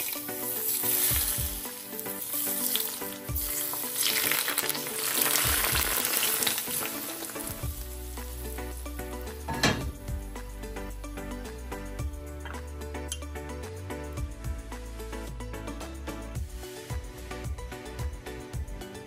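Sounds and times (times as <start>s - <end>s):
hot oil sizzling: 0.0s - 10.4s, 16.4s - 17.6s.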